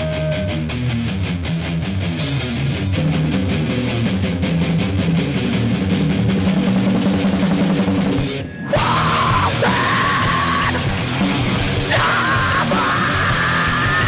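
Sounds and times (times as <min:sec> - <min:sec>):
live heavy rock band: 0:00.0 - 0:14.0.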